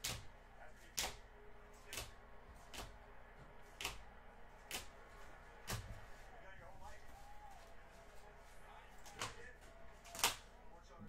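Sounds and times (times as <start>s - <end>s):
cards tapping on a table: 5.6s - 6.0s.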